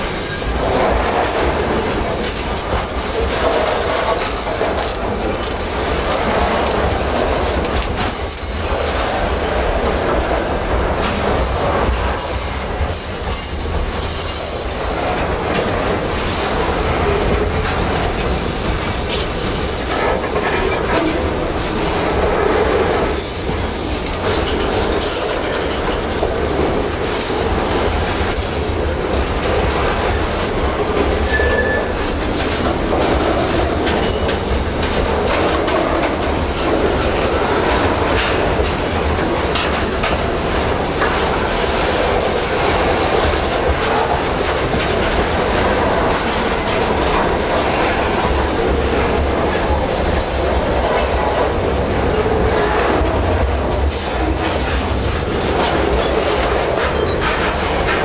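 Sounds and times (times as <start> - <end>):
train wheel squeal: 0.0 - 0.6, 31.2 - 32.9
freight train rumbling past: 0.0 - 58.0
wheels clacking over rail joints: 0.0 - 58.0.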